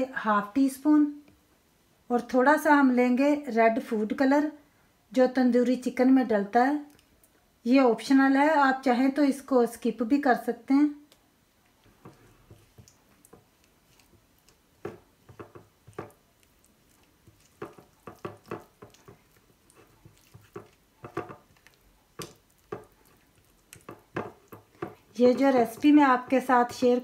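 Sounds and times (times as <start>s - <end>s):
spatula stirring thick marinade: 11.8s - 27.0s.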